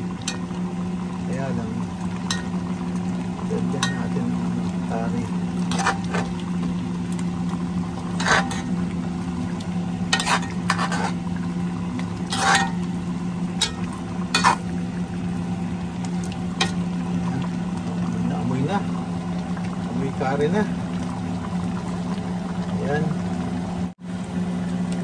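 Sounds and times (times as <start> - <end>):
sauce bubbling: 0.0 - 25.0
steady low hum: 0.0 - 25.0
metal ladle clinking against pot: 2.3 - 2.6.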